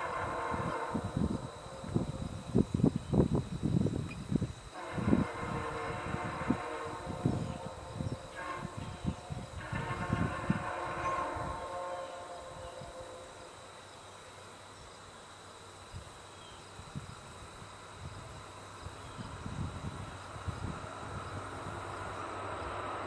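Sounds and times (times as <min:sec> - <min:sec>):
train horn chord: 0:00.0 - 0:03.2, 0:04.7 - 0:13.9
diesel locomotive rumbling on rails: 0:00.0 - 0:23.0.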